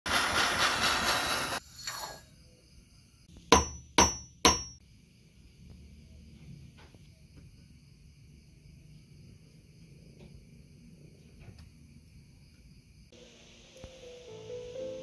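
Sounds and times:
gas torch hissing: 0.1s - 2.3s
hammer strikes on metal: 3.5s - 4.8s.

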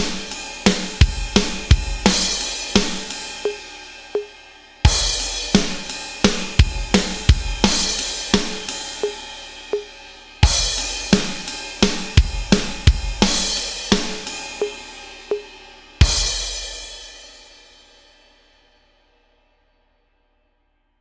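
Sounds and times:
electronic drum rock beat: 0.0s - 16.6s.

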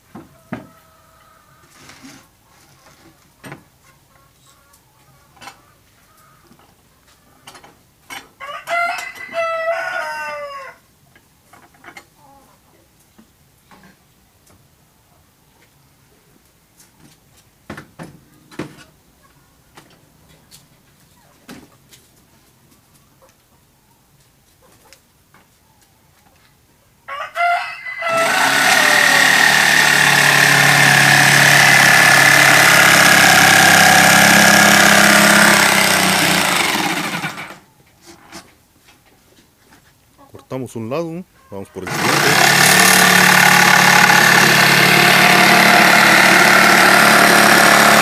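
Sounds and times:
electric jigsaw cutting wood: 28.1s - 37.6s, 41.8s - 48.0s.

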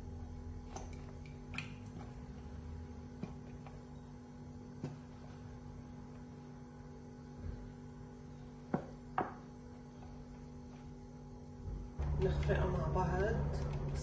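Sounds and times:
electrical hum: 0.0s - 14.0s.

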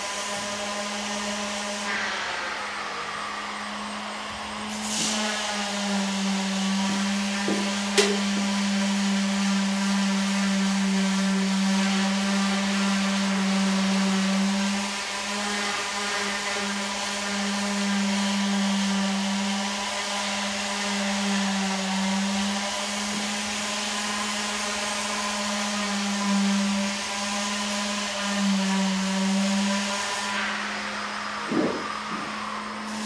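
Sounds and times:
machine motor humming: 0.0s - 9.2s, 29.7s - 33.0s
hissing whir: 0.0s - 10.2s, 29.2s - 33.0s.

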